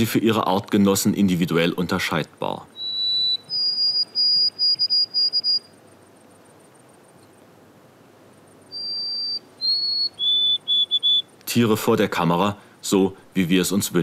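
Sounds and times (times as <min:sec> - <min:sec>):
sparrow whistled song: 0:02.7 - 0:05.7, 0:08.6 - 0:11.4.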